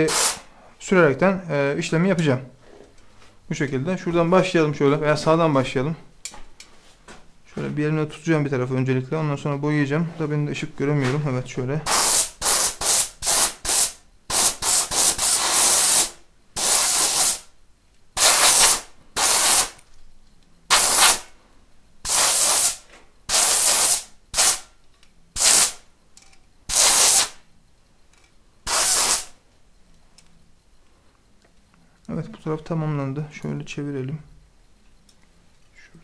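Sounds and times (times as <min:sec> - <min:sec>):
aerosol spray can hissing: 0:00.0 - 0:00.4, 0:11.9 - 0:17.5, 0:18.2 - 0:19.8, 0:20.7 - 0:21.2, 0:22.1 - 0:24.6, 0:25.4 - 0:25.8, 0:26.7 - 0:27.4, 0:28.7 - 0:29.3.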